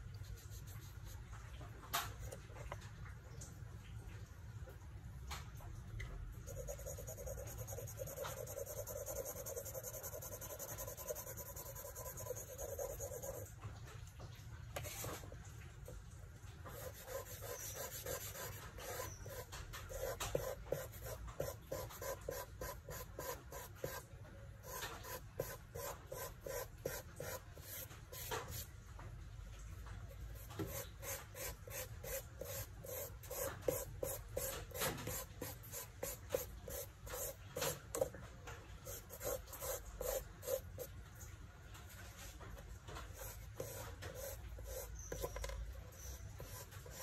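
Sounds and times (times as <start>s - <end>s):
charcoal rubbing on paper: 6.5s - 13.5s, 16.7s - 24.0s, 43.2s - 47.0s.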